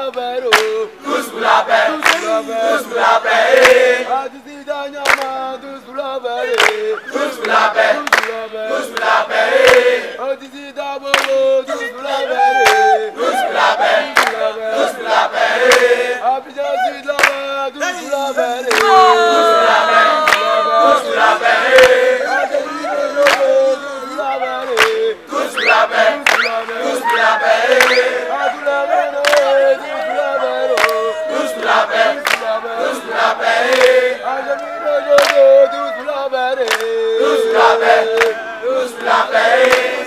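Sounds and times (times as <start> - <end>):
hand claps: 0.0 - 0.8, 1.9 - 2.3, 3.5 - 3.8, 5.0 - 5.4, 6.5 - 6.8, 7.4 - 9.9, 11.1 - 11.4, 12.6 - 12.9, 14.1 - 14.4, 15.6 - 16.0, 17.1 - 17.5, 18.7 - 19.0, 20.2 - 20.5, 21.7 - 22.0, 23.2 - 23.6, 24.7 - 25.1, 26.2 - 28.1, 29.2 - 29.6, 30.7 - 32.5, 33.6 - 35.8, 36.6 - 37.0, 38.1 - 38.4, 39.0 - 40.0
young voices singing: 6.4 - 10.2, 11.7 - 16.2, 18.0 - 40.0
voices shouting: 11.7 - 14.2, 17.8 - 32.2, 32.8 - 36.2.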